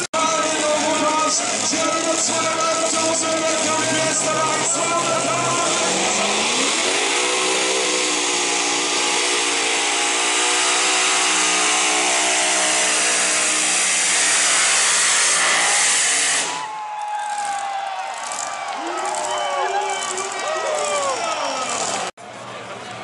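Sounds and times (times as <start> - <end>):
tractor engine at full throttle: 0.0 - 16.6.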